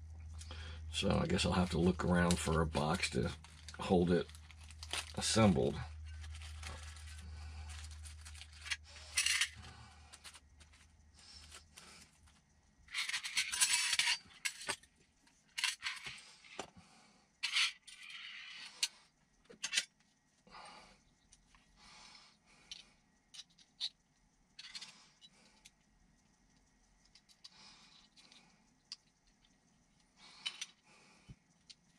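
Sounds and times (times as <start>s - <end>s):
plastic bag crinkling: 2.8s - 12.1s
metal screws clattering into tray: 12.9s - 14.8s.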